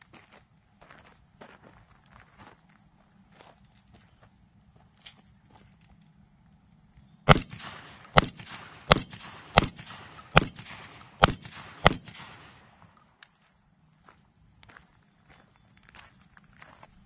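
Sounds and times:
shotgun shots: 0:07.3 - 0:13.1.

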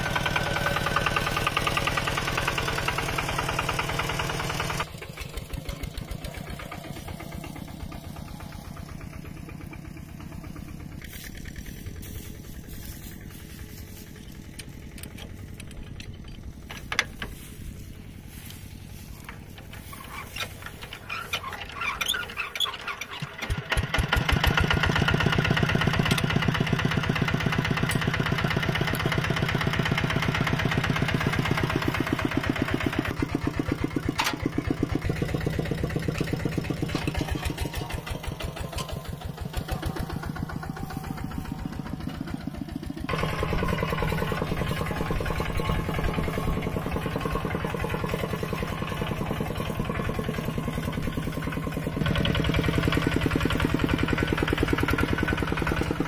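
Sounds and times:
tractor engines chugging: 0:00.0 - 0:56.0.

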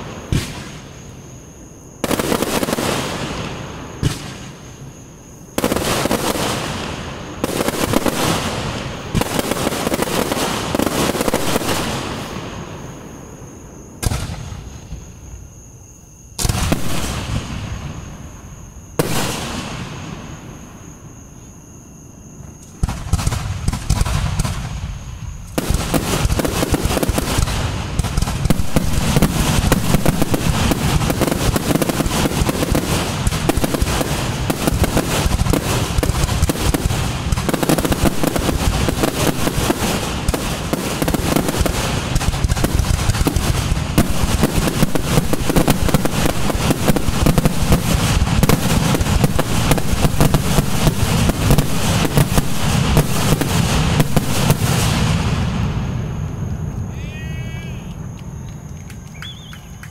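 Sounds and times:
firework crackling: 0:02.0 - 0:12.8, 0:19.0 - 0:20.5, 0:22.7 - 0:56.1.

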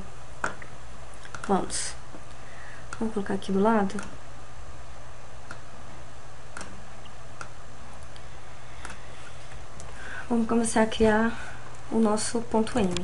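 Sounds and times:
steady low hum: 0:00.0 - 0:13.0
computer mouse clicks: 0:01.2 - 0:01.6, 0:03.9 - 0:04.2, 0:06.5 - 0:06.8.

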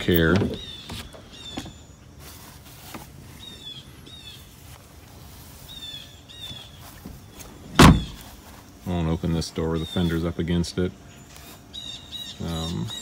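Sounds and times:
songbirds chirping: 0:00.0 - 0:13.0
car door thump: 0:07.0 - 0:08.3.

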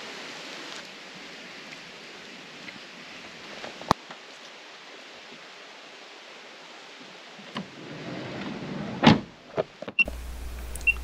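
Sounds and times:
light rain hiss: 0:00.0 - 0:11.0
sliding van door rolling: 0:07.6 - 0:09.6
small clicks: 0:09.9 - 0:11.0.

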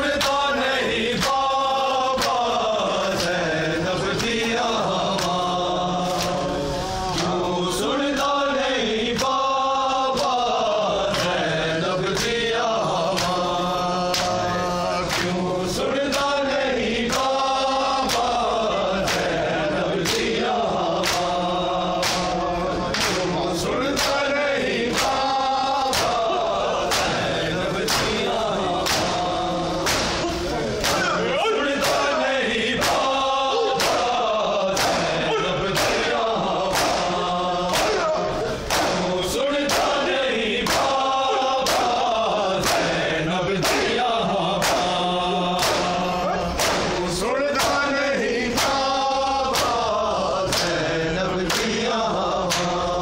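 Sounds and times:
men chanting: 0:00.0 - 0:53.0
hands slapping chests: 0:02.2 - 0:03.4, 0:06.1 - 0:06.5, 0:14.1 - 0:14.4, 0:15.1 - 0:15.4, 0:18.0 - 0:18.4, 0:19.0 - 0:19.4, 0:20.0 - 0:20.4, 0:21.0 - 0:21.4, 0:22.0 - 0:23.3, 0:24.0 - 0:24.3, 0:24.9 - 0:26.3, 0:26.9 - 0:27.2, 0:27.8 - 0:29.2, 0:29.8 - 0:31.1, 0:32.8 - 0:33.2, 0:33.8 - 0:39.1, 0:39.7 - 0:40.0, 0:40.6 - 0:43.0, 0:43.6 - 0:44.0, 0:44.6 - 0:45.0, 0:45.6 - 0:47.9, 0:48.5 - 0:48.9, 0:49.5 - 0:49.8, 0:50.5 - 0:50.8, 0:51.5 - 0:51.8, 0:52.5 - 0:52.8.

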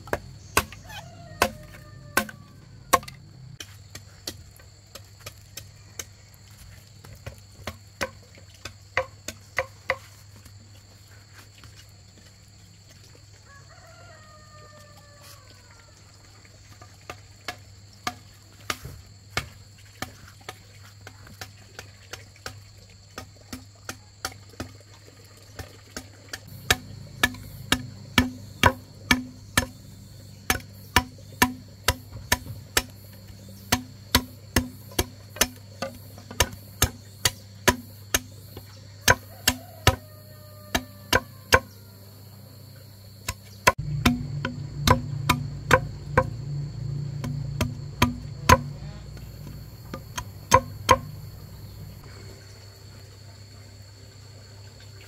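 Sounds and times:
hand tool striking: 0:00.1 - 0:04.4, 0:26.5 - 0:29.8, 0:30.5 - 0:33.0, 0:33.7 - 0:38.3, 0:39.0 - 0:40.0, 0:40.7 - 0:41.7, 0:43.3 - 0:46.4, 0:47.2 - 0:51.3
rooster crowing: 0:00.6 - 0:03.3, 0:13.4 - 0:16.1, 0:39.0 - 0:42.3
low steady drone: 0:26.5 - 0:34.1, 0:43.7 - 0:52.4.

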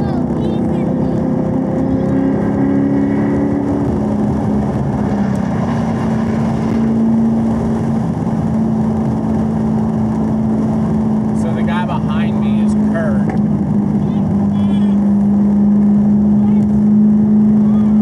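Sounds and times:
car engine running: 0:00.0 - 0:18.0
road and wind noise: 0:00.0 - 0:18.0.

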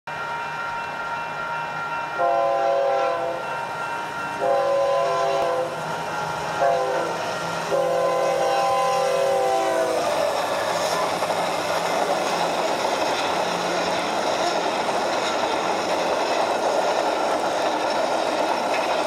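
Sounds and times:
model train horn through speaker: 0:02.2 - 0:03.5, 0:04.4 - 0:05.8, 0:06.5 - 0:11.2
steady engine hum: 0:04.7 - 0:19.0.

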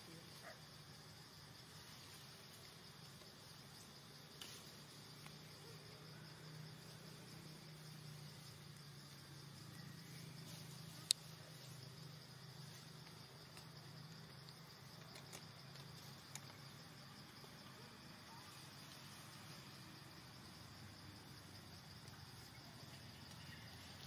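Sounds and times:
insect chorus trilling: 0:00.0 - 0:24.0.

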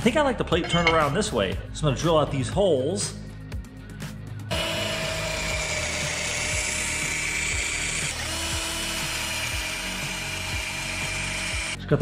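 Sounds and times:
cordless drill boring metal: 0:04.5 - 0:11.8.

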